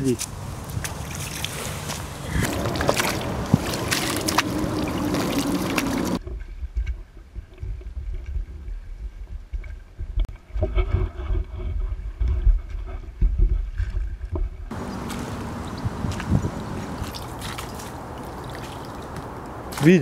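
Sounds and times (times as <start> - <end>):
wind on microphone: 0.0 - 18.2
oars splashing in water: 0.6 - 6.2, 14.7 - 20.0.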